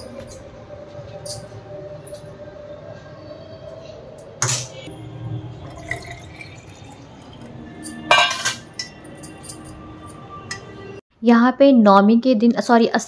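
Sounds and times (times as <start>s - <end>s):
milk pouring into steel bottle: 5.6s - 7.5s
metal pan and tongs clinking: 7.8s - 9.8s
metallic clatter of pan set down: 8.1s - 8.8s.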